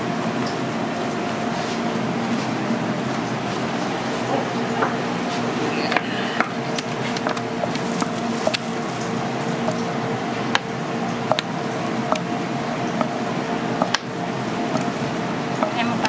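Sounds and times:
kitchen equipment hum: 0:00.0 - 0:16.0
sticky mixture squishing: 0:05.4 - 0:16.0.

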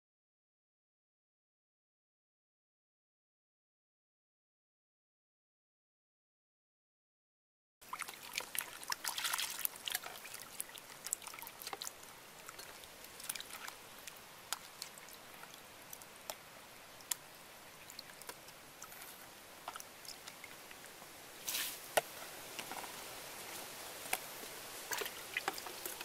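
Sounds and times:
water sloshing in a plastic bowl: 0:07.8 - 0:16.4, 0:24.8 - 0:26.0.

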